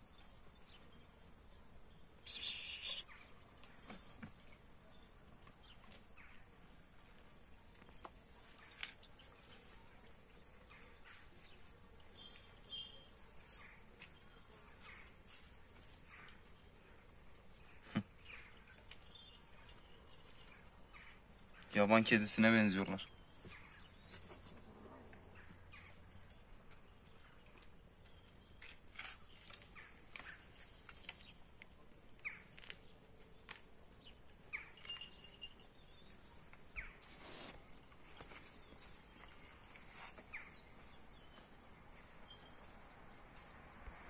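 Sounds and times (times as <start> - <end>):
faint bird chirps: 7.9 - 22.0, 32.2 - 43.1
brief rustle: 28.3 - 31.4, 36.5 - 40.4.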